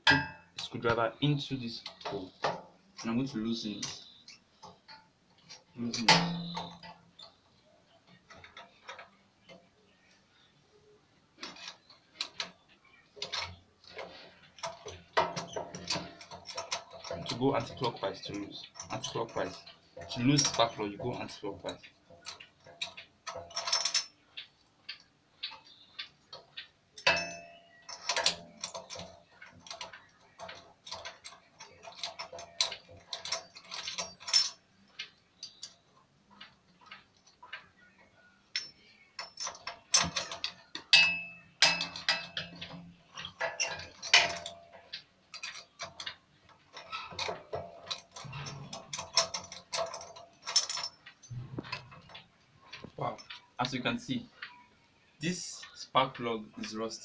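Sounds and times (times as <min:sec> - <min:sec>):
metal clanks: 0:00.0 - 0:10.2, 0:10.8 - 0:54.6.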